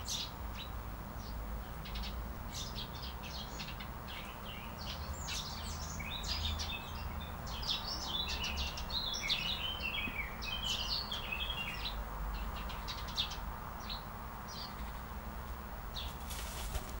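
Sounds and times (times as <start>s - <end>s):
songbirds chirping: 0.0s - 17.0s.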